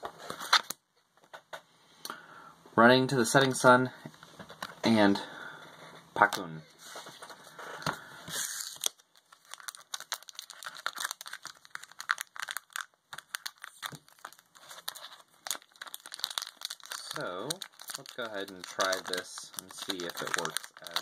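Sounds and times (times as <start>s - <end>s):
foil wrapper crinkling: 8.4s - 21.0s.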